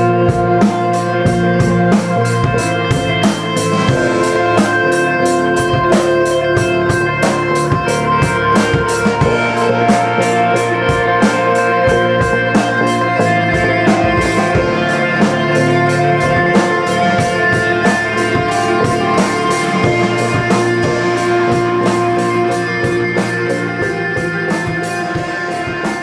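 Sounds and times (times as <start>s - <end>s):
drum kit steady beat: 0.0s - 26.0s
electric guitar: 0.0s - 26.0s.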